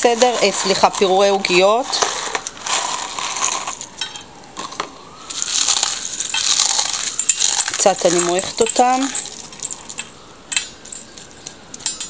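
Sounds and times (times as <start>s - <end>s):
cornflakes crunching between fingers: 5.3s - 10.1s.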